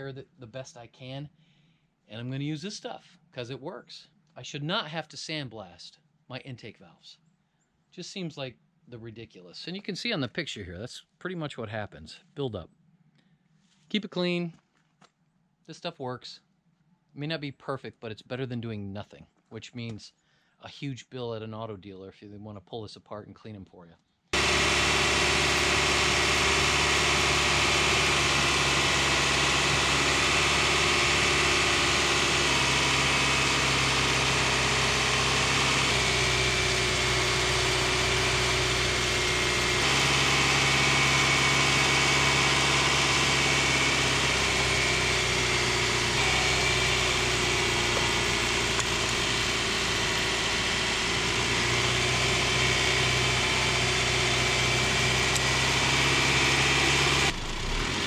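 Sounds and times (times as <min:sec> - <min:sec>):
car engine idling: 0:24.4 - 0:58.0.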